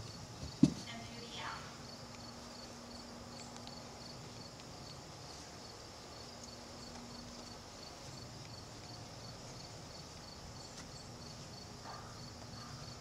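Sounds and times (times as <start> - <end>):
cricket chirping: 0.0 - 13.0
faint room hiss: 0.0 - 13.0.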